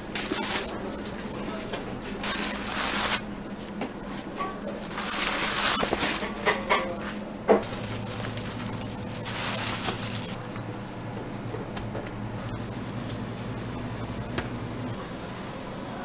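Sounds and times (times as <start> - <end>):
plastic bag crinkling: 0.1 - 3.2, 4.6 - 6.3, 7.6 - 10.4.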